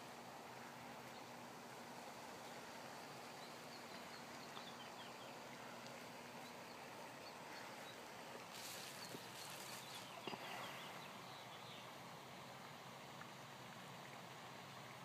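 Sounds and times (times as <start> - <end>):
faint steady hum: 0.0 - 15.0
outdoor background hiss: 0.0 - 15.0
faint high bird chirps: 8.6 - 11.8.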